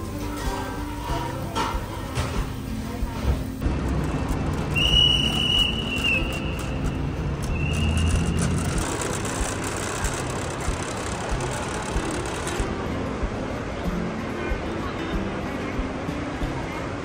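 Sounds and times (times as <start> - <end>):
road traffic rumble: 2.6 - 17.0
whistle blasts: 4.7 - 6.8, 7.4 - 8.4.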